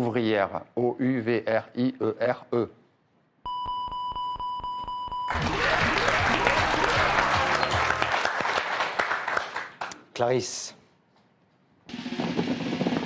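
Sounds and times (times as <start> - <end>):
applause: 5.3 - 10.1.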